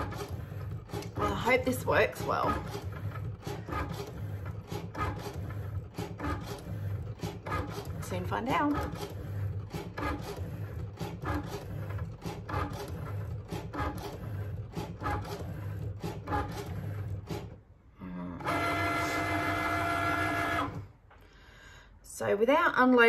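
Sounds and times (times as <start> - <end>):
cutting machine whirring and clicking: 0.0 - 17.6, 18.4 - 20.9.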